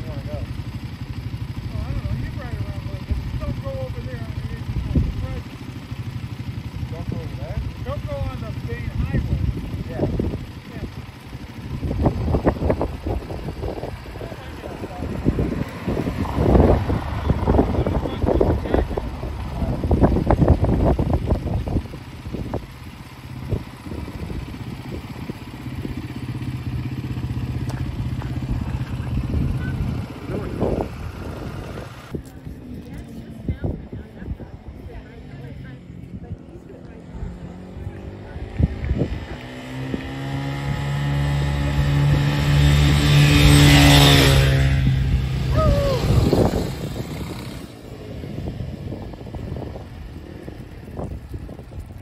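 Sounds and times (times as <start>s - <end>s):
engine idling: 0.0s - 37.2s
wind buffeting microphone: 6.5s - 52.0s
vehicle engine drone passing: 11.2s - 52.0s.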